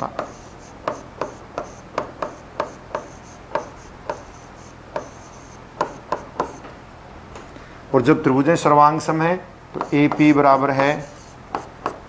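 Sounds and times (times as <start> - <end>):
pen tapping on glass screen: 0.1 - 4.3, 4.9 - 6.7, 9.7 - 10.4, 11.5 - 12.0.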